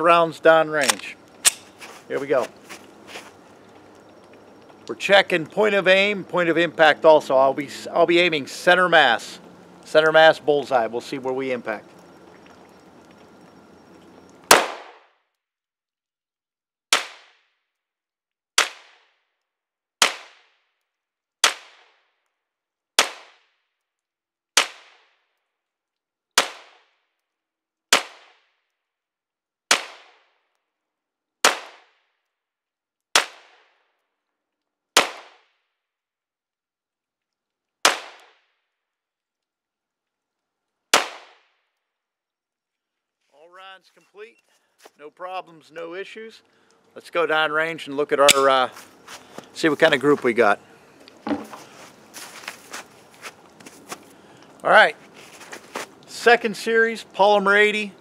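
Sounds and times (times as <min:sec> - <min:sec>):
pistol single shots: 0:14.5 - 0:15.0.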